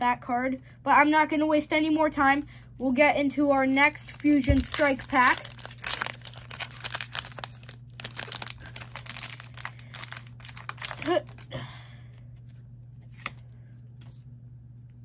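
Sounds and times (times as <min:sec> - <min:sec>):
foil wrapper crinkling and tearing: 0:03.6 - 0:11.5.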